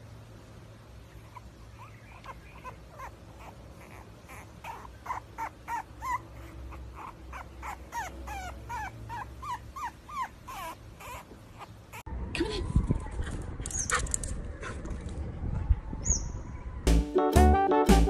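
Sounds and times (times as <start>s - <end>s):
puppy whimpering: 1.2s - 12.1s.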